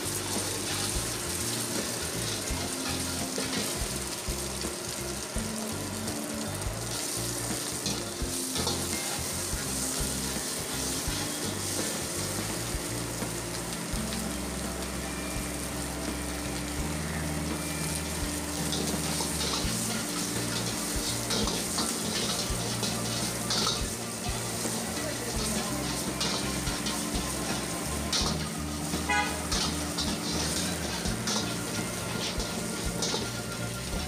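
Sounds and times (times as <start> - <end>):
metal ladle scraping a pan: 0.0 - 4.2, 6.9 - 13.4, 17.6 - 34.0
vegetables and egg sizzling in wok: 0.0 - 34.0.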